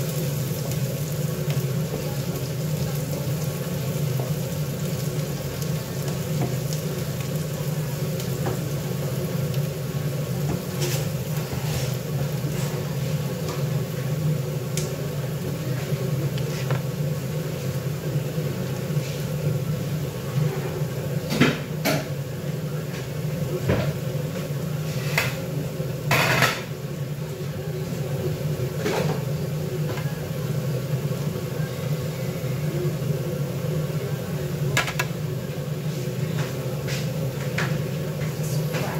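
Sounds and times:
faint sizzling: 0.0 - 38.9
dishes clattering: 26.1 - 26.7
utensils and pots clinking: 26.1 - 26.7.

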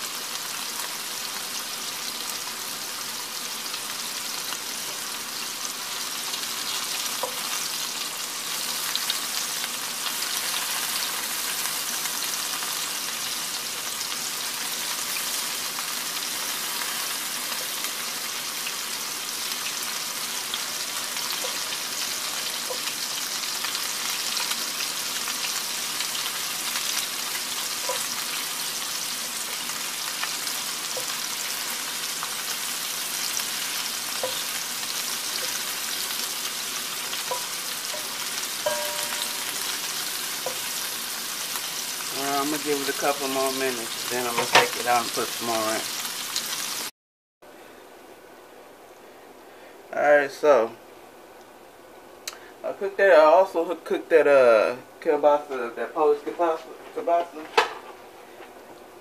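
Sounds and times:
meatballs sizzling in oil: 0.0 - 46.9
spatula turning food: 25.4 - 41.0.

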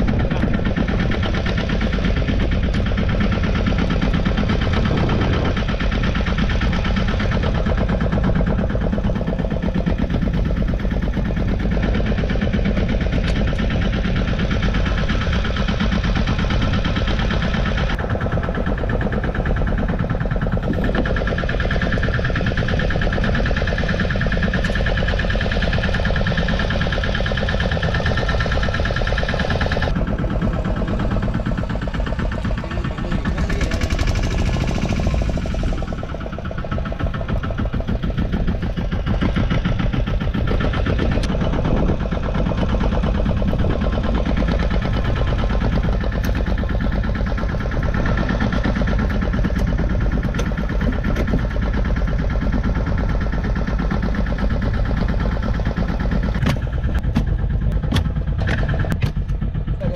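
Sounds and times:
boat engine chugging: 0.0 - 59.9.

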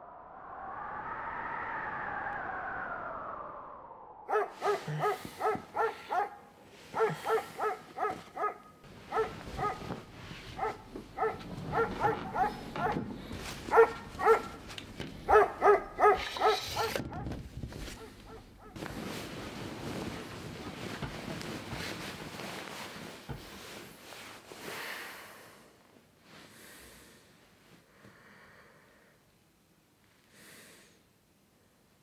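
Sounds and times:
small dog yapping: 7.0 - 9.8, 10.6 - 13.0, 13.7 - 14.6, 15.3 - 18.8.

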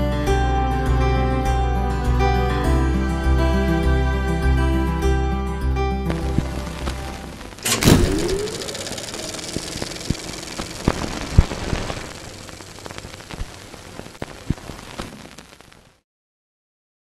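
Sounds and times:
crackles and pops: 6.1 - 16.0
steady hiss: 6.1 - 16.0.

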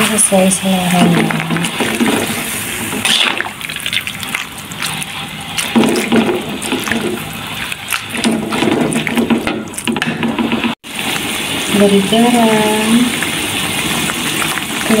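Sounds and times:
liquid sloshing in a pan: 0.7 - 10.8.

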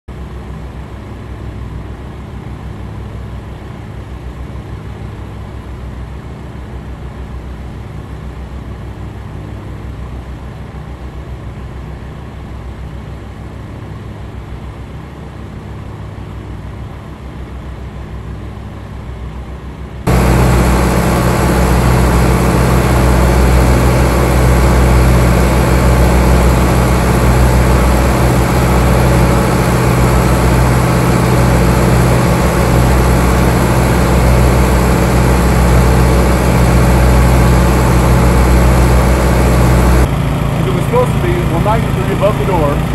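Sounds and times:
low engine drone: 0.1 - 42.9
loud close engine running: 20.1 - 42.9.

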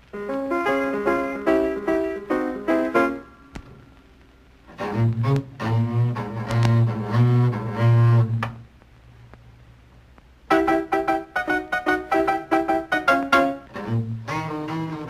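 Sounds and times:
bowed double bass notes: 4.7 - 8.7, 10.5 - 15.0.

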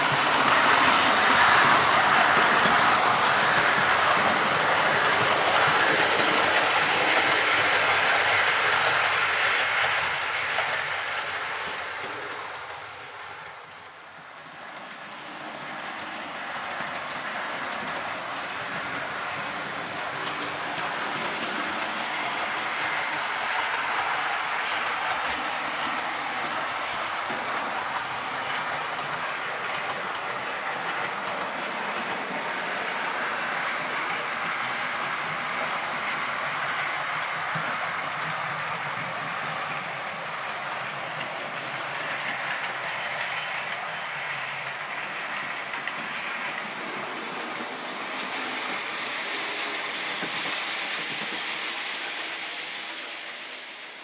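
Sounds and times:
model train wheels rumbling on rail: 0.0 - 54.0.

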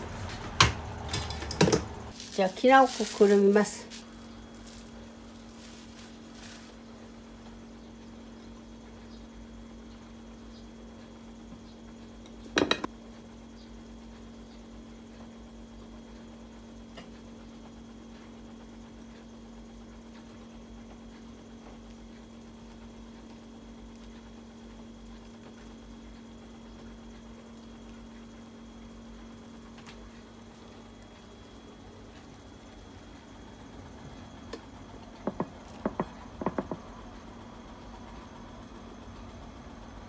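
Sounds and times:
steady low hum: 0.0 - 40.0.

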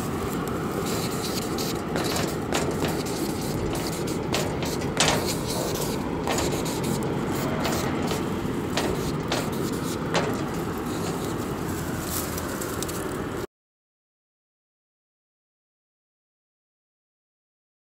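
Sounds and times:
moving vehicle rumble: 0.0 - 13.5
sharp clicks and knocks: 0.4 - 13.0.

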